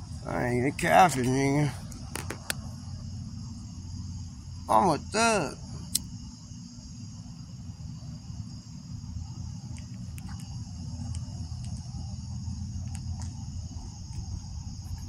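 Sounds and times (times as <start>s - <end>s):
crickets chirping: 0.0s - 15.0s
low background rumble: 0.0s - 15.0s
faint ticks: 9.7s - 11.9s, 12.8s - 13.4s.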